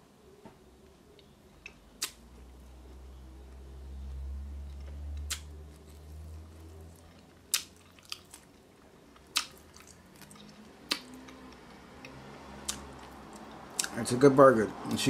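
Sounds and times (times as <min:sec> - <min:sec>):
mouth clicks: 0:01.6 - 0:02.2, 0:09.3 - 0:11.4
person chewing: 0:01.6 - 0:14.0.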